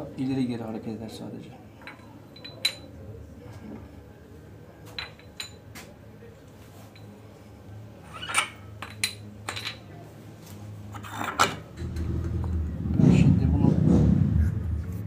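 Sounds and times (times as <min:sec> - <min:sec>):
low steady hum: 0:01.0 - 0:15.0
metal parts clinking: 0:05.0 - 0:05.6, 0:08.1 - 0:09.9.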